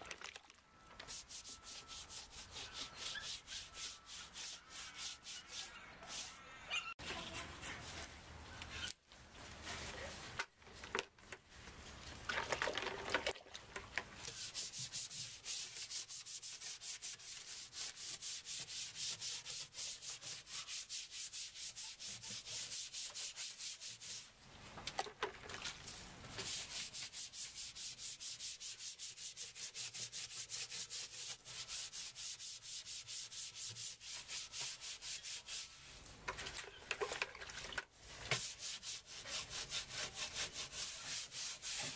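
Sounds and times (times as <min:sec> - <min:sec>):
hand tool scraping: 0:01.0 - 0:06.4, 0:14.3 - 0:24.3, 0:26.4 - 0:35.8, 0:38.1 - 0:41.9.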